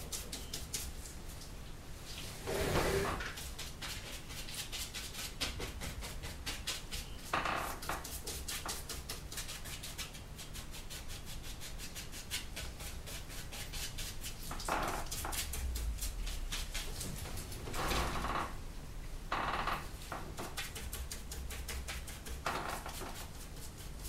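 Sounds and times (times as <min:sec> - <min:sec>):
paintbrush scratching on canvas: 0:02.4 - 0:17.8, 0:20.4 - 0:24.0.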